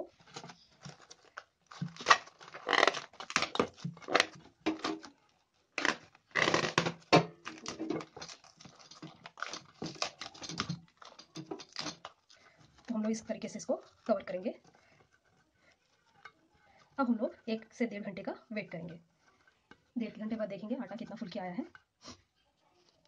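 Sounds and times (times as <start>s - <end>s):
plastic cling wrap crinkling: 0.0s - 21.8s.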